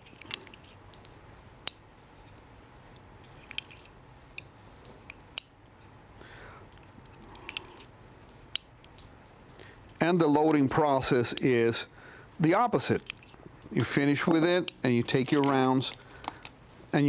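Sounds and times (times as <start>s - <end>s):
revolver metallic clicks: 3.0s - 5.6s, 6.7s - 11.6s.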